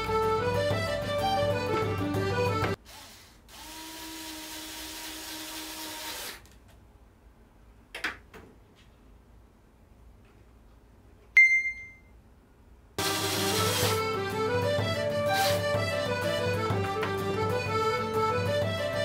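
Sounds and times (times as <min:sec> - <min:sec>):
sharp high ding: 0:11.4 - 0:12.1.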